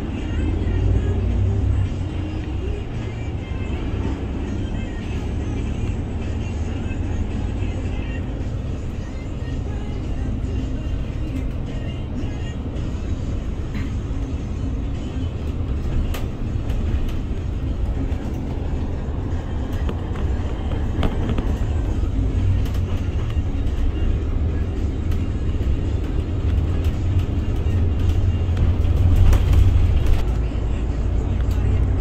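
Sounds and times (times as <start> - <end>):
bus engine and tyres rumbling: 0.0 - 32.0.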